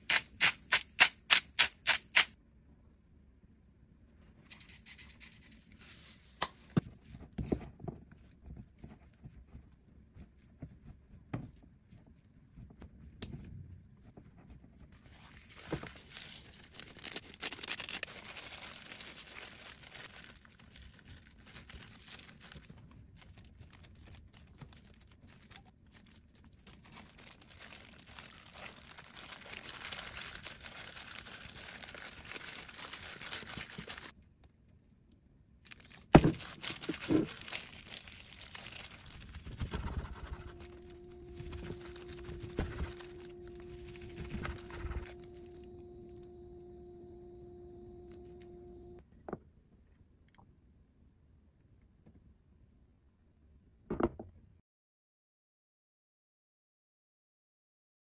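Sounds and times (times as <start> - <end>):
plastic gloves crinkling: 13.9 - 34.2, 35.7 - 46.3.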